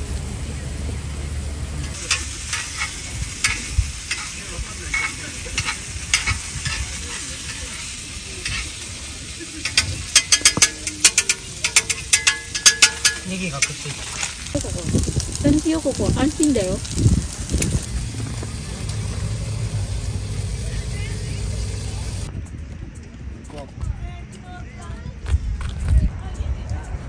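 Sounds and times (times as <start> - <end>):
food sizzling on grill pan: 1.8 - 22.3
oil popping and spattering: 1.8 - 22.3.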